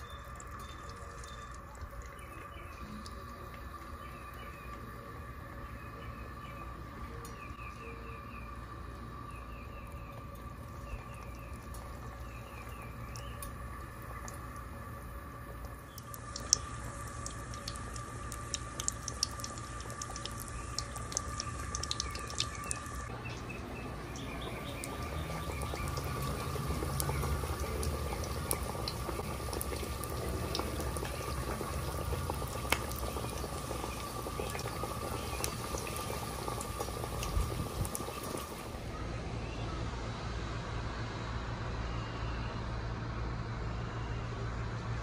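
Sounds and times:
chicken frying in hot oil: 0:00.0 - 0:38.8
steady hum: 0:00.0 - 0:45.0.

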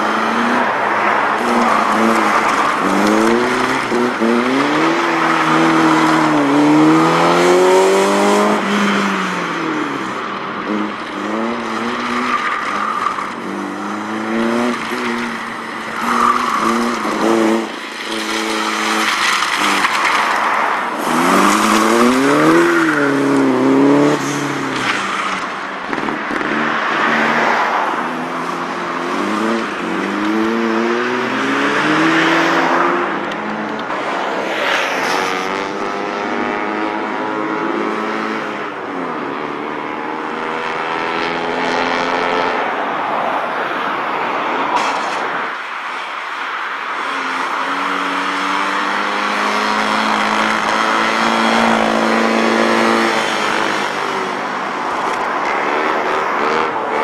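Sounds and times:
tyres squealing: 0:11.7 - 0:24.4.

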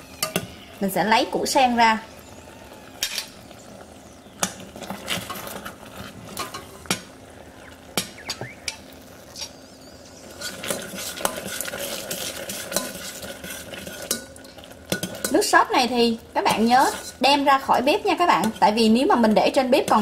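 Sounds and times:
faint sizzle of sauce: 0:00.0 - 0:20.0
utensils clinking on a metal pot: 0:00.2 - 0:00.5, 0:03.0 - 0:03.3, 0:04.4 - 0:07.0, 0:10.4 - 0:15.5, 0:16.5 - 0:20.0
spatula stirring and scraping syrup: 0:04.5 - 0:06.7, 0:10.2 - 0:15.5, 0:16.4 - 0:20.0.

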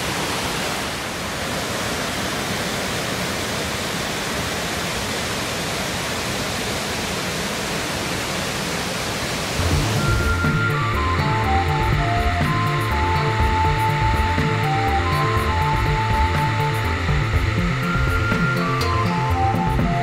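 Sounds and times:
waterfall rushing: 0:00.0 - 0:20.0
background music with beat: 0:09.6 - 0:20.0.

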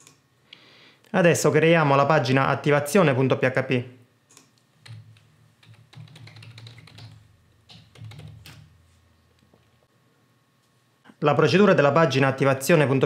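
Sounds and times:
keyboard typing: 0:04.3 - 0:08.8.

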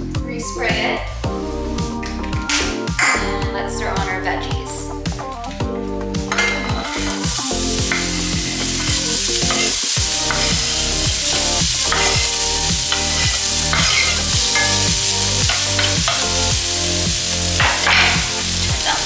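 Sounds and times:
background music with steady beat: 0:00.0 - 0:19.0
vegetables sizzling in a skillet: 0:06.3 - 0:19.0.

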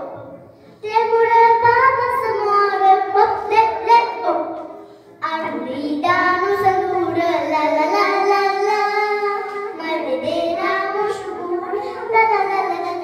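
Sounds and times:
girls singing into microphones: 0:05.2 - 0:13.0.

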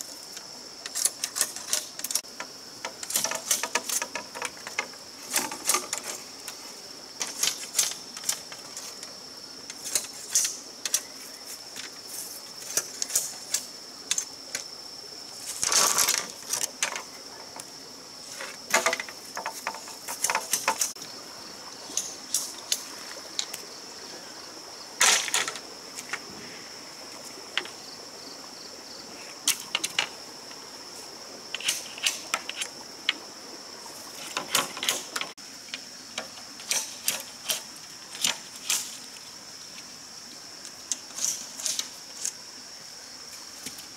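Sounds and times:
high insect drone: 0:00.0 - 0:43.9
bamboo cracking: 0:18.6 - 0:21.0.

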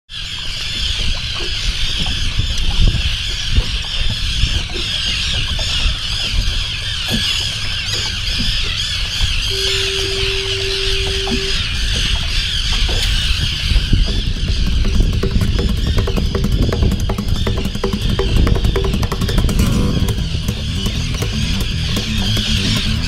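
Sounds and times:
seabirds calling: 0:00.1 - 0:23.0
low rumble: 0:08.3 - 0:23.0
steady tone: 0:09.5 - 0:12.1.

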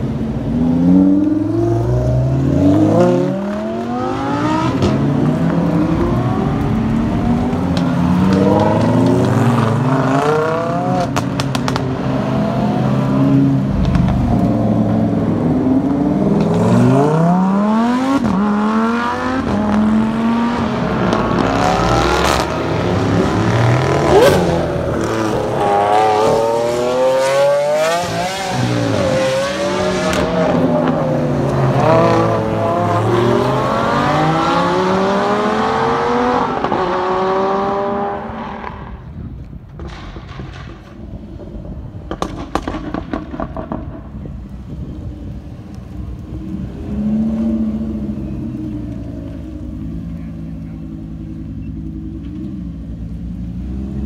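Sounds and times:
sports cars accelerating: 0:00.0 - 0:39.3, 0:44.5 - 0:54.0
exhaust cracks: 0:13.5 - 0:17.0, 0:38.6 - 0:53.6.

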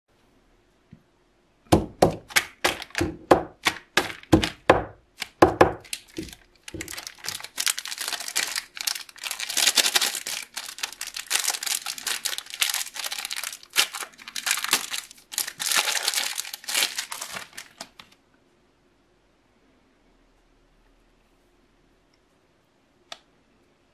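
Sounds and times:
plastic wrapper crackling: 0:01.8 - 0:18.2
wrapper crinkling and rustling: 0:02.1 - 0:18.2.

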